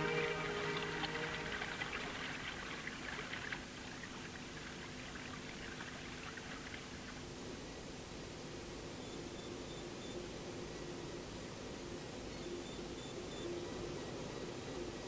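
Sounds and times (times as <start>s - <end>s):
background music: 0.0s - 2.5s
water trickling and bubbling: 0.0s - 7.3s
low steady hiss and hum: 0.0s - 15.0s.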